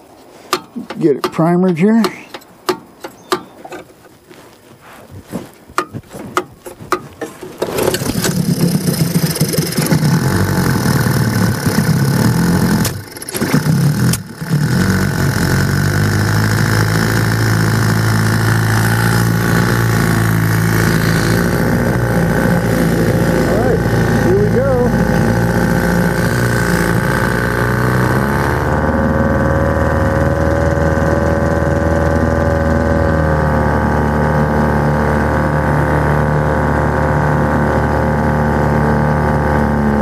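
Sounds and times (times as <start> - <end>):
clicks and knocks: 0.5 - 4.0
outboard motor running: 5.8 - 40.0.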